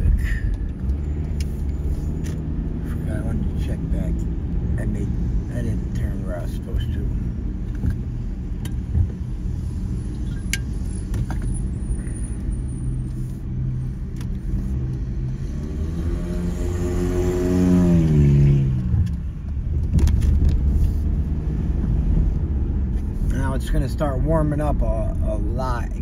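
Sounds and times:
street traffic rumble: 0.0 - 26.0
vehicle passing close: 14.5 - 19.2.

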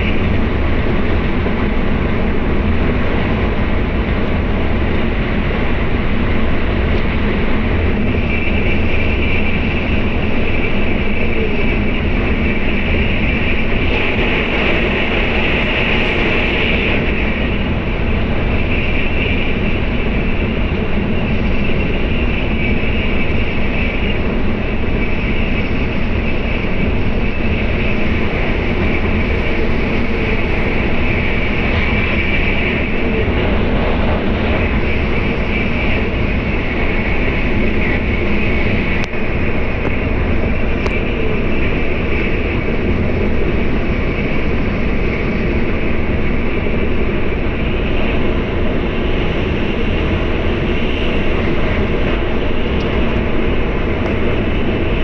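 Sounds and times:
train rumbling and rushing: 0.0 - 55.0
hissing note: 13.8 - 17.6.

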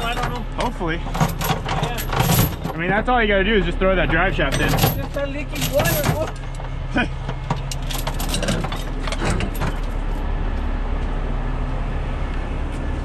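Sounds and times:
metal chains clinking: 0.0 - 2.8, 4.4 - 6.6, 7.5 - 10.0
truck engine idling: 0.0 - 13.0.

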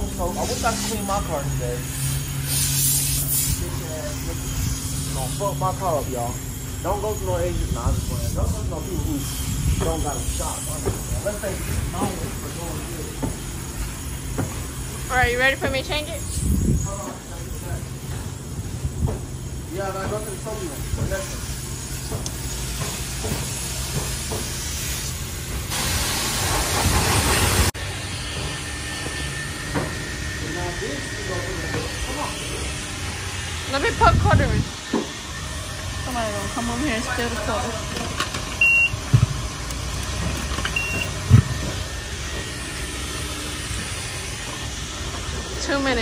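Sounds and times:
pressure washer spraying water: 0.0 - 16.4, 19.8 - 27.8
short electronic beep: 38.6 - 39.0, 40.8 - 41.2.

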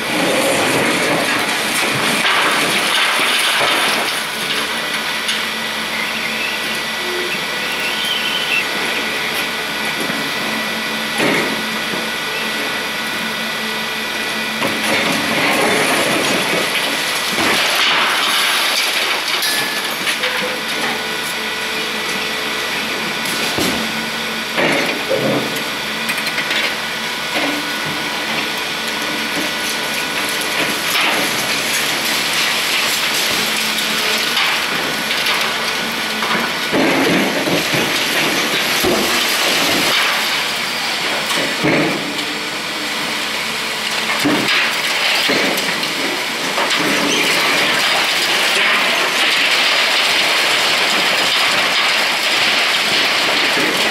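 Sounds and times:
excavator engine and hydraulic whine: 0.0 - 53.9
concrete breaking and debris falling: 0.2 - 5.4, 14.7 - 21.2, 29.1 - 42.2, 43.8 - 53.9.

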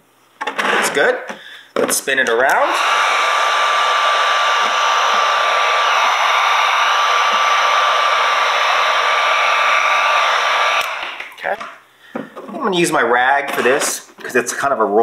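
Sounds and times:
heat gun running: 2.5 - 11.6.

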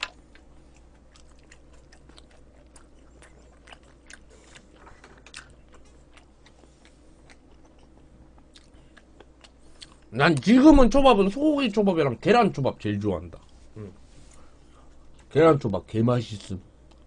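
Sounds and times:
person chewing food: 0.0 - 10.4.

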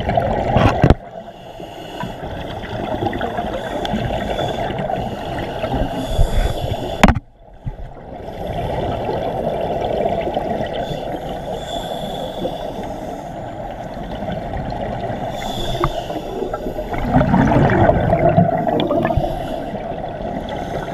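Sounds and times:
muffled underwater rushing: 0.0 - 20.9
regulator bubbles gurgling: 13.4 - 20.9.

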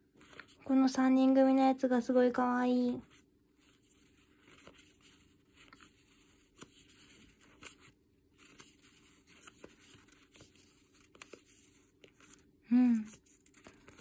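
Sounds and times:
stickers rustling: 3.0 - 14.0.

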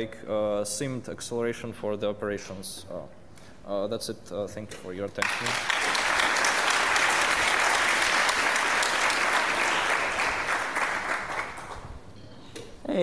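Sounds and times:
audience applauding: 5.2 - 12.1.

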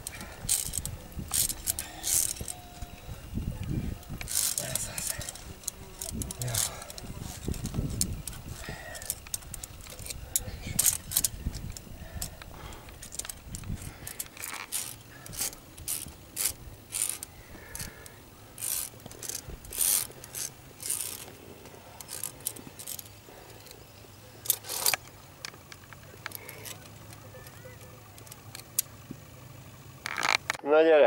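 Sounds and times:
metal climbing gear clinking: 0.0 - 29.4, 30.0 - 30.6.

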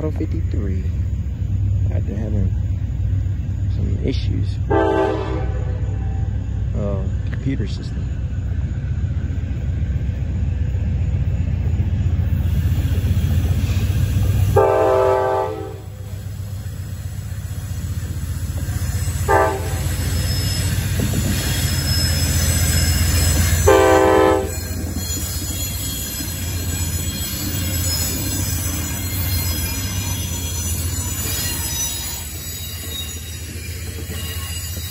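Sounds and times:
locomotive engine rumble: 0.0 - 34.9
train horn: 4.7 - 6.3, 14.5 - 16.0, 19.2 - 20.0, 23.6 - 24.6.

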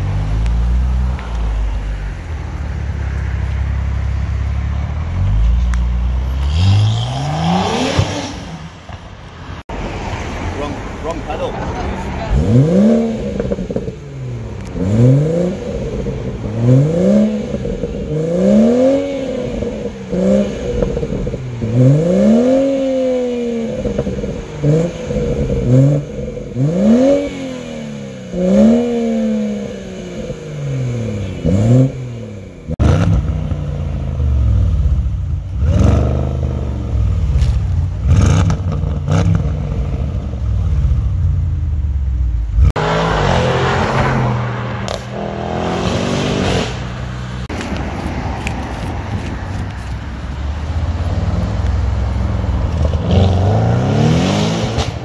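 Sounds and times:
car engine revving: 0.0 - 47.7, 50.6 - 55.0
deeper car engine revving: 4.8 - 9.0, 12.3 - 47.5, 51.1 - 55.0
exhaust cracks: 31.2 - 55.0.

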